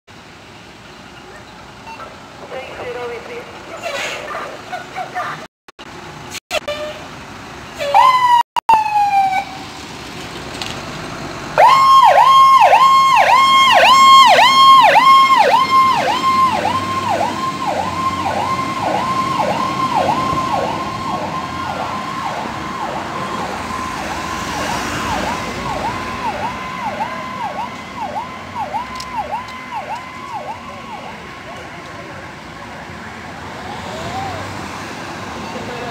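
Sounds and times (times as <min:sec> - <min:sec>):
fire engine siren yelping: 0:07.8 - 0:09.7, 0:11.6 - 0:32.2.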